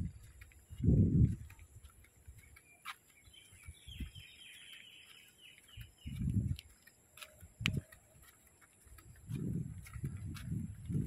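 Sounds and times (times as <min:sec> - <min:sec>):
dull low thumps: 0:00.0 - 0:01.9, 0:05.8 - 0:06.6, 0:07.5 - 0:07.9, 0:09.1 - 0:11.0.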